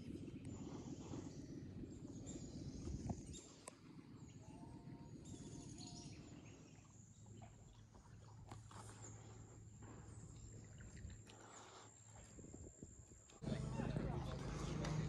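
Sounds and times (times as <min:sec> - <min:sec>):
faint birds calling: 0:00.0 - 0:12.3
low rumble: 0:13.4 - 0:15.0.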